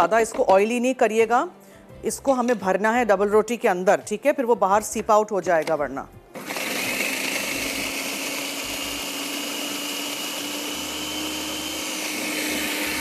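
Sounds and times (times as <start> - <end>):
kitchen blender running: 6.4 - 13.0.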